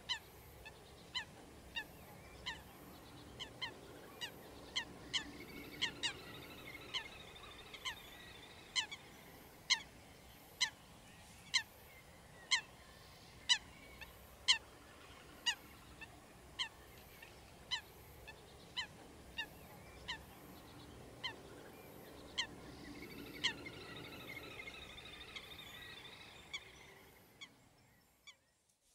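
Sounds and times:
bird calling: 0.0s - 9.9s, 15.4s - 27.6s
faint steady background: 0.0s - 28.9s.

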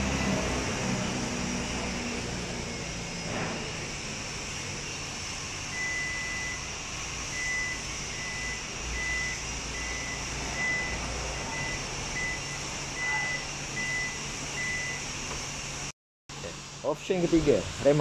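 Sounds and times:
tailgate warning buzzer beeping: 0.0s - 3.2s, 5.7s - 15.1s.

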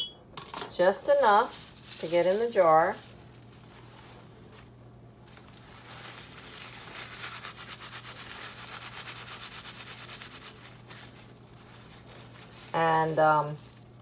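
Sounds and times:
paper towel wiping hands: 3.6s - 13.8s.

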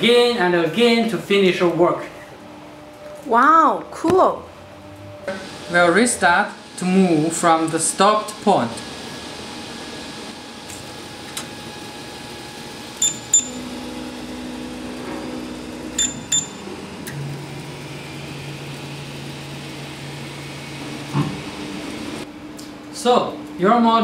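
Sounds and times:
fan whirring: 0.0s - 24.0s
stepper motors humming: 3.8s - 23.9s
short high beeps: 13.0s - 13.6s, 16.0s - 16.6s.

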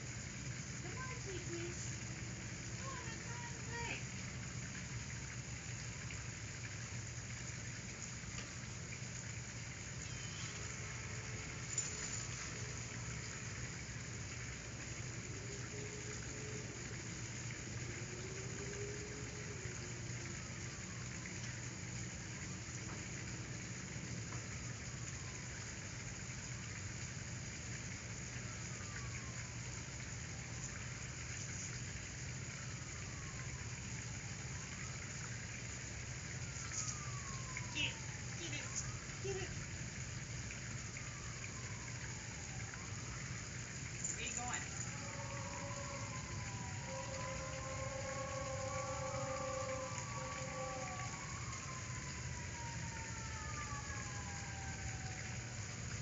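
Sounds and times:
background hiss: 0.0s - 56.0s
low hum: 4.0s - 26.6s, 40.4s - 56.0s.

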